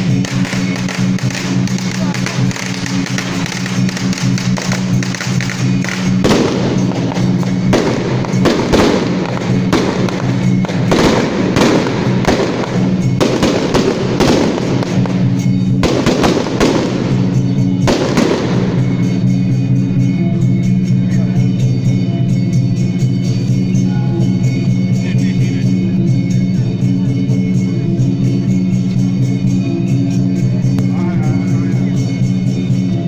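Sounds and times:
firecrackers crackling: 0.0s - 21.7s
loud music with low notes: 0.0s - 33.0s.

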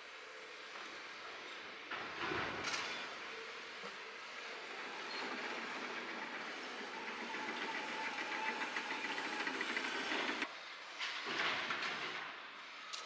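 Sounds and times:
excavator running: 0.7s - 10.5s.

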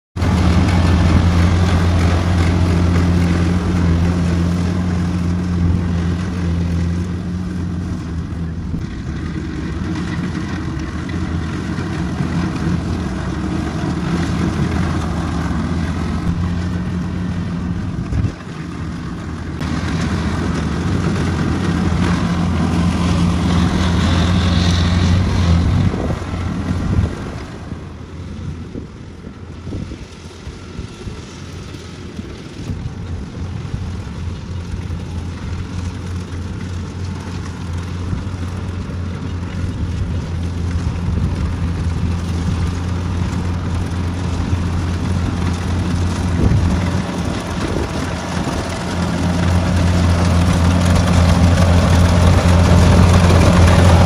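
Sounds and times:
machinery rattle: 0.2s - 28.6s, 31.9s - 54.0s
diesel engine humming: 0.2s - 54.0s.

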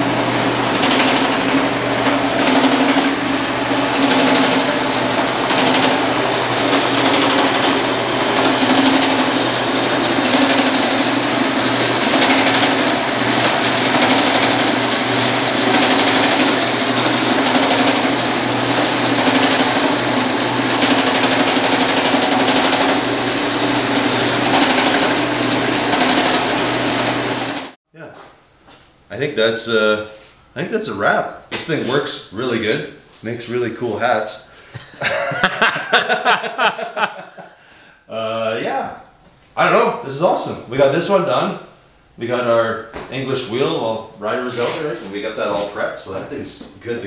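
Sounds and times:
power hammer hammering sheet metal: 0.0s - 27.7s.

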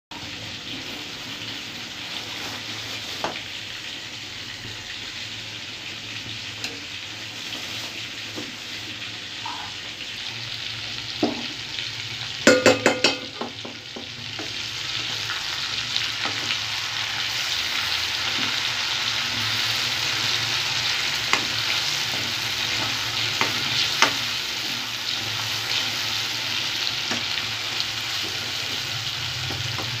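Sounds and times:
chicken frying in hot oil: 0.1s - 30.0s.

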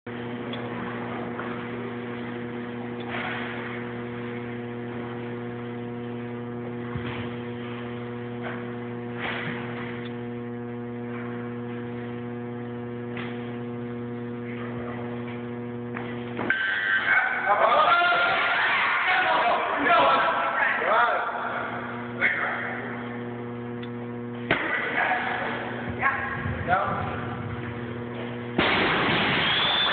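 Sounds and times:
electrical mains hum: 0.1s - 29.9s.

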